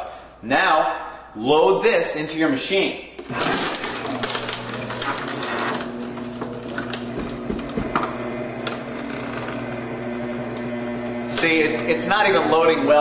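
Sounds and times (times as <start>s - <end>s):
paper shredder motor humming: 3.2s - 13.0s
disc cracking: 3.3s - 9.8s.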